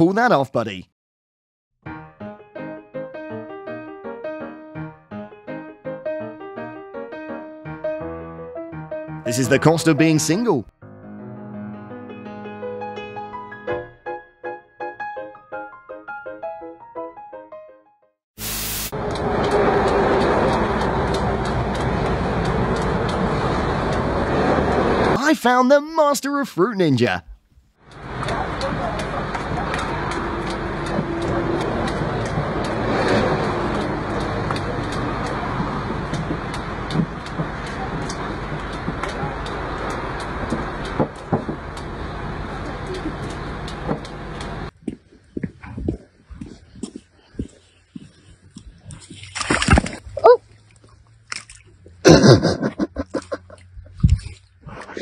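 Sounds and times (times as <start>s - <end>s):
steady machine-like noise: 18.4s - 25.2s
dog splashing in mud: 48.6s - 52.0s
dog wavering cry: 50.2s - 50.4s.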